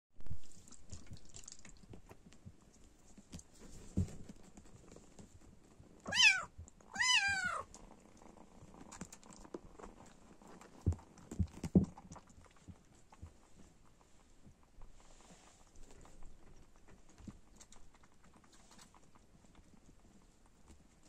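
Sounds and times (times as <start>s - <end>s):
soft handling noises: 0.4s - 6.0s
kitten meowing: 6.1s - 7.7s.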